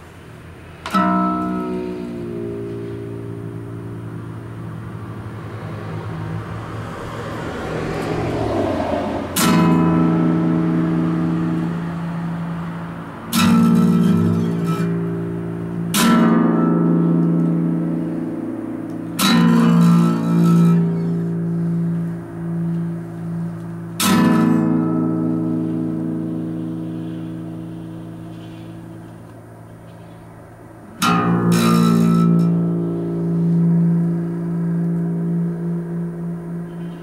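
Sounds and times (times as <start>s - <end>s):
acoustic guitar strumming: 0.0s - 37.0s.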